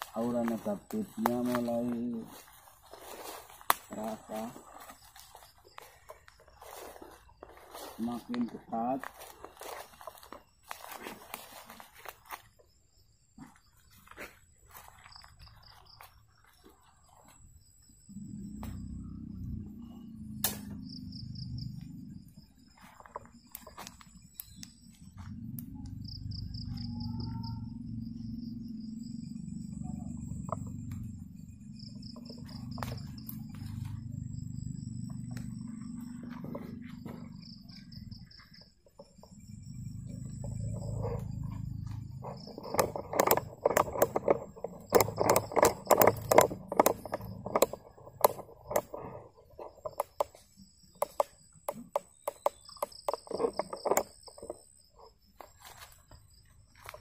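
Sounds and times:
rustling through undergrowth: 0:00.0 - 0:12.8
night insects chirping: 0:00.0 - 0:57.0.

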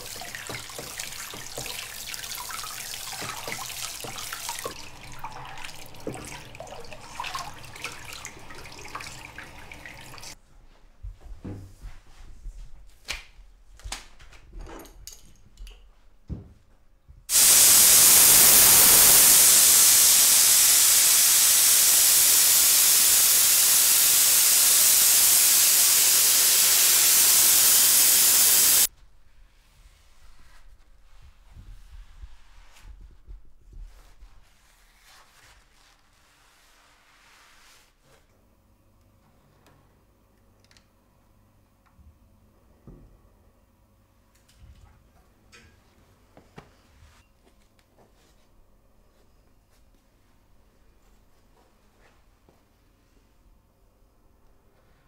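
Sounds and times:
water spraying onto metal plate: 0:00.0 - 0:10.4, 0:17.3 - 0:28.9
loud steady hiss: 0:17.3 - 0:28.9.

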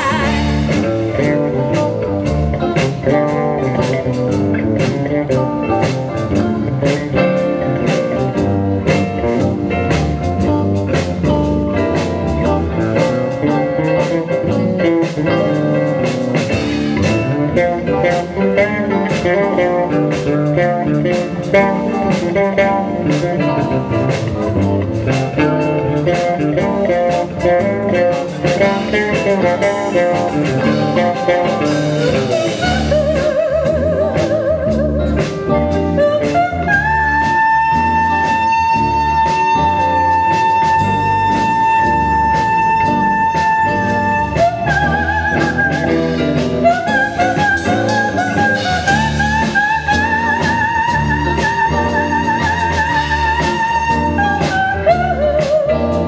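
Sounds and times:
drum hits: 0:00.0 - 0:36.0
blues-rock band playing: 0:00.0 - 0:56.0.

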